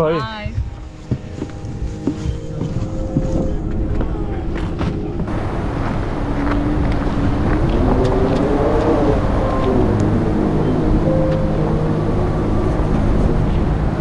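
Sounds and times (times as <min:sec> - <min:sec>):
low engine drone: 0:00.0 - 0:14.0
wind buffeting microphone: 0:00.0 - 0:14.0
tone rising in pitch: 0:06.2 - 0:14.0.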